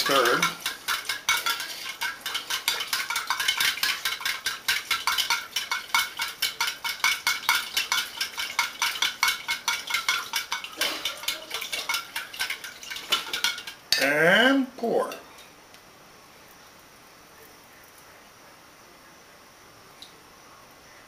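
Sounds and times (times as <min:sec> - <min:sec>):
ice rattling in cocktail shaker: 0:00.0 - 0:14.1.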